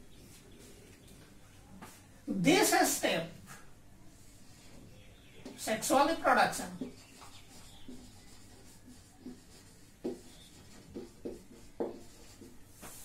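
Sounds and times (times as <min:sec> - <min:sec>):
marker pen writing on whiteboard: 0:05.4 - 0:13.0.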